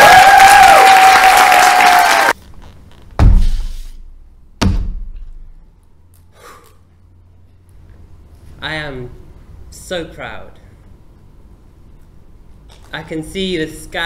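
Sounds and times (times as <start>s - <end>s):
long held whoop: 0.0s - 2.3s
audience applauding: 0.0s - 2.4s
heavy foot stomps on stage: 3.2s - 3.7s, 4.6s - 5.3s.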